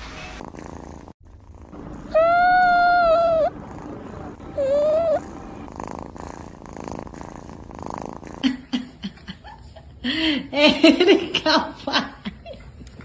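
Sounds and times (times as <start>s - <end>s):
kitten purring: 0.3s - 9.6s.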